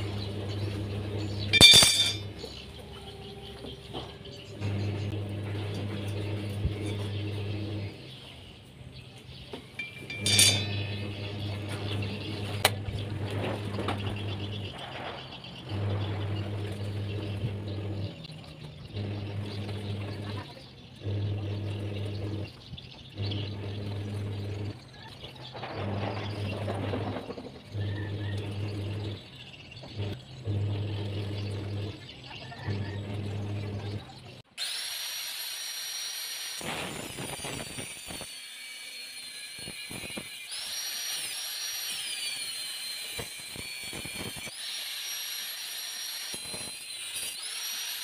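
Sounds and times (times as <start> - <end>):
low machine hum: 0.0 - 34.4
metallic clank with ring: 1.5 - 2.3, 9.8 - 10.9.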